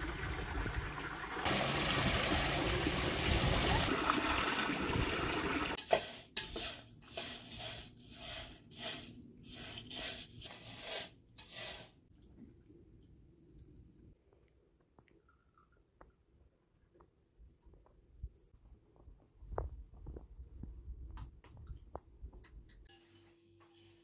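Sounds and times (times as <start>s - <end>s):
water from hose splashing into pool: 0.0s - 6.2s
metal spoon scraping pan: 5.8s - 12.0s.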